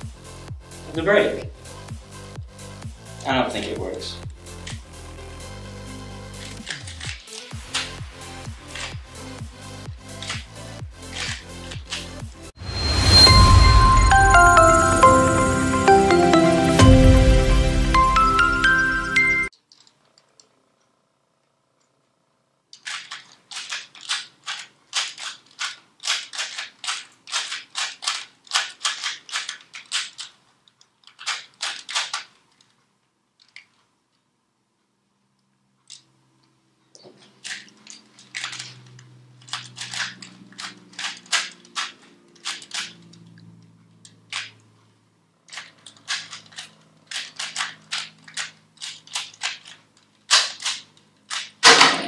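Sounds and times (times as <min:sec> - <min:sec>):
puzzle cube clicking and clacking: 0:06.3 - 0:09.1, 0:10.0 - 0:12.3, 0:22.8 - 0:32.8, 0:37.2 - 0:43.3, 0:44.3 - 0:44.6, 0:45.5 - 0:51.8.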